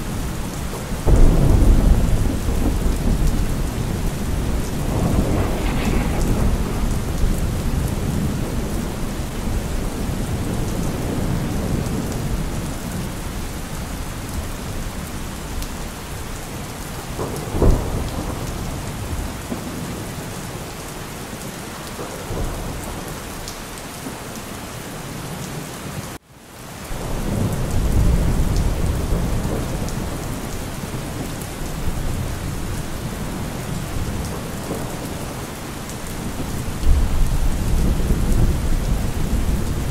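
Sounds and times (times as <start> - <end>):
steady rain: 0.0 - 39.9
rolling thunder: 0.1 - 20.6, 27.0 - 39.9
sharp thunder crack: 1.1 - 11.9.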